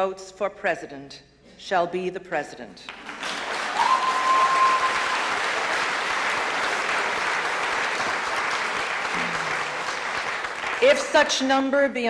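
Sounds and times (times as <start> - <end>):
audience applause: 2.9 - 11.1
high whistle: 3.8 - 5.2.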